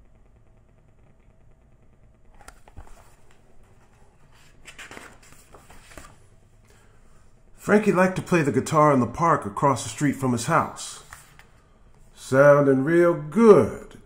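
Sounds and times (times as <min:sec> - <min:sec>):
paper pages rustling: 0:02.6 - 0:06.2, 0:11.0 - 0:11.6
soft knocks of book handling: 0:02.6 - 0:06.2.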